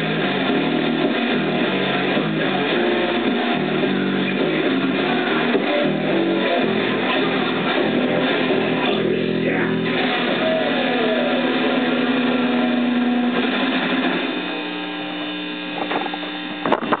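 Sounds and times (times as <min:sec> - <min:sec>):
amplifier hum: 0:00.0 - 0:17.0
bass guitar notes: 0:00.0 - 0:17.0
electric guitar notes: 0:00.0 - 0:17.0.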